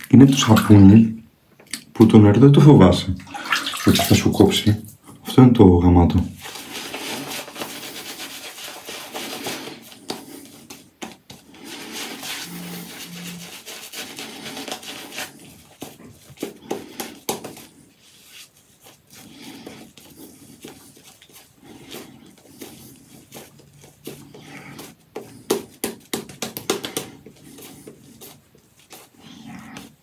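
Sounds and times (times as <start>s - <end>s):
shaving brush swishing lather: 6.4s - 30.0s.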